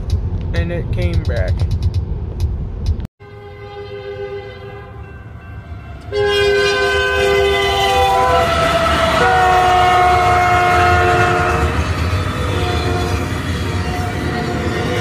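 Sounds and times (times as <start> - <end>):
rumble of locomotives and wheels: 0.0 - 15.0
locomotive air horn chord: 3.2 - 13.3.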